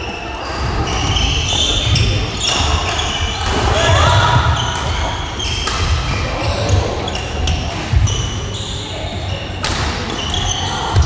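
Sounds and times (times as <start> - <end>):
shoes squeaking: 0.0 - 11.0
racket hitting shuttlecock: 2.0 - 6.2, 9.6 - 10.5.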